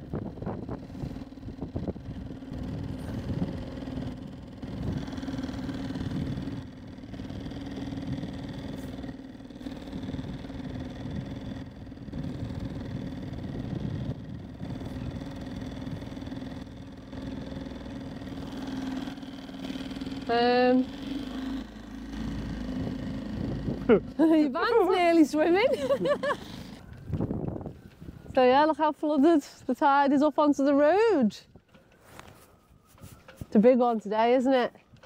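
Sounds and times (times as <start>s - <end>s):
outboard motor running: 0.0s - 32.3s.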